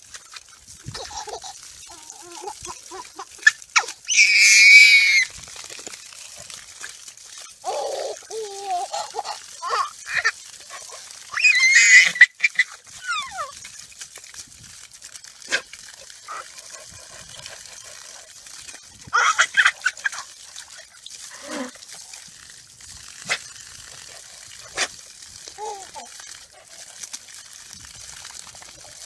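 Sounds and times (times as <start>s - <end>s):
toddler squealing laughter: 11.3s - 13.5s, 19.1s - 20.2s.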